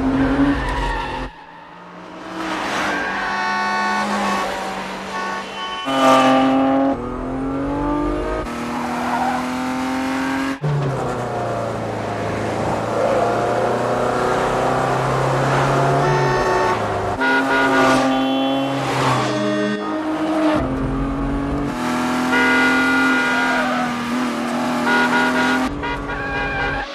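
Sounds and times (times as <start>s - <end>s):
car engine revving through gears: 5.9s - 25.7s.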